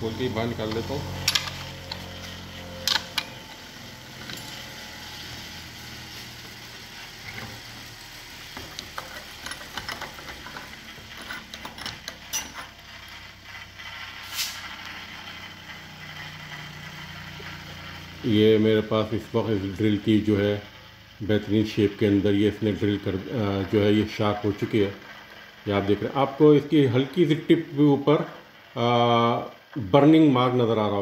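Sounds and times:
metal clicks and rattles: 0:00.7 - 0:02.1, 0:02.8 - 0:03.4, 0:08.7 - 0:12.8.

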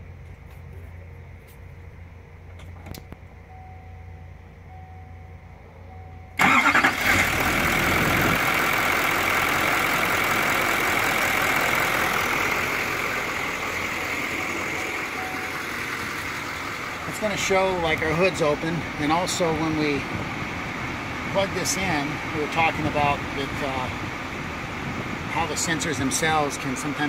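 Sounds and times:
diesel engine starting and idling: 0:00.0 - 0:27.0
faint short beeps: 0:03.0 - 0:06.4, 0:15.2 - 0:15.6.

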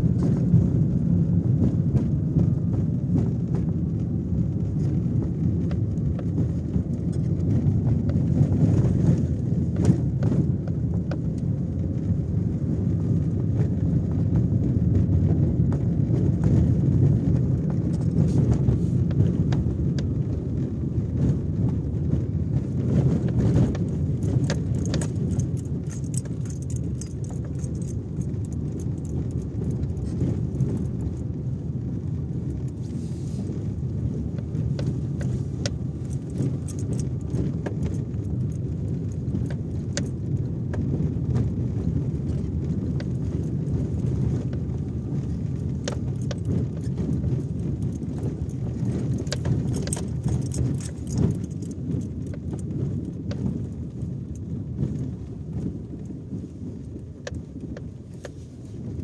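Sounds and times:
car tyres and engine rumbling: 0:00.0 - 0:59.0
clicks and rattles from bumps: 0:22.9 - 0:31.3, 0:34.4 - 0:41.5, 0:42.3 - 0:55.0.

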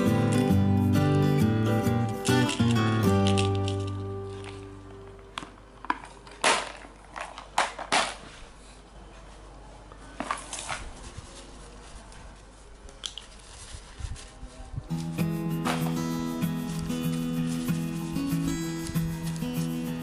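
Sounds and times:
tissue rustling: 0:10.9 - 0:20.0.

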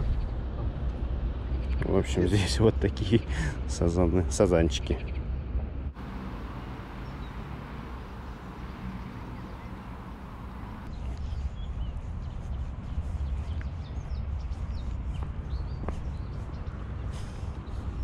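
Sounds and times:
bird chirps: 0:06.1 - 0:11.9.

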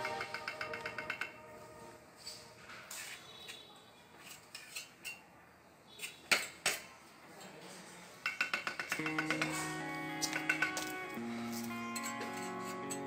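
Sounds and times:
trowel clinking on stone: 0:08.2 - 0:11.0, 0:11.6 - 0:13.0.

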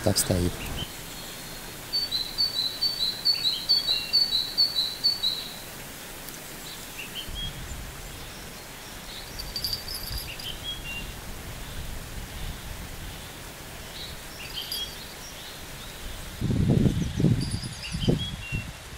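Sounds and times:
river flowing: 0:00.0 - 0:11.5, 0:13.2 - 0:16.4
wind: 0:00.0 - 0:18.9
bird chirps: 0:00.5 - 0:05.6, 0:09.1 - 0:11.1, 0:14.0 - 0:15.6.

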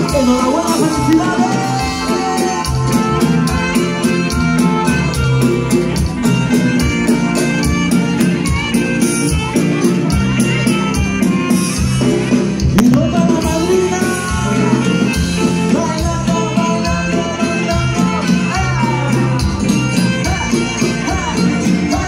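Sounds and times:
person singing: 0:00.0 - 0:03.7, 0:12.8 - 0:22.0
latin dance band music: 0:00.0 - 0:22.0.

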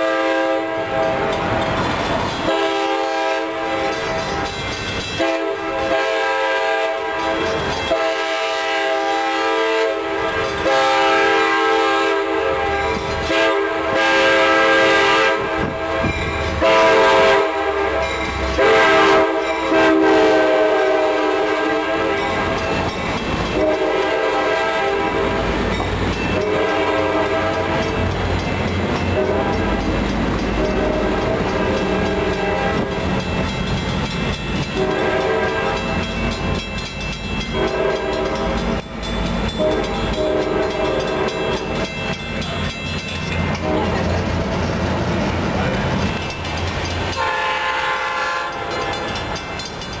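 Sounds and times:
train horn blasts: 0:00.0 - 0:01.4, 0:02.4 - 0:04.5, 0:05.2 - 0:22.6, 0:23.5 - 0:25.6, 0:26.3 - 0:28.1, 0:29.1 - 0:29.8, 0:30.6 - 0:33.0, 0:34.6 - 0:36.2, 0:37.4 - 0:38.8, 0:39.4 - 0:41.9, 0:43.5 - 0:44.2, 0:47.1 - 0:49.2
diesel locomotive rumble: 0:00.0 - 0:50.0.

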